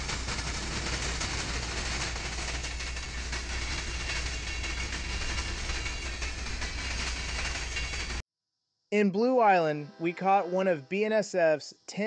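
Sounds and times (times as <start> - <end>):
train wheels rumbling on rail: 0.0 - 8.2.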